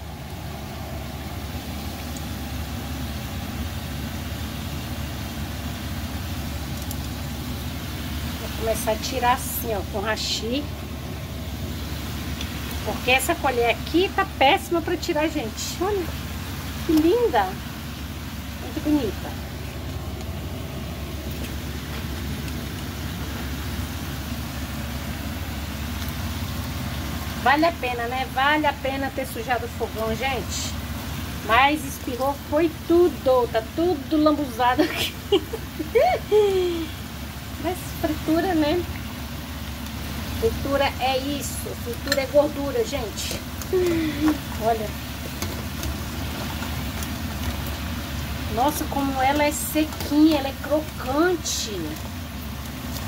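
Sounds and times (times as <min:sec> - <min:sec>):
low hum: 0:00.0 - 0:34.6
food deep-frying in oil: 0:00.0 - 0:53.0.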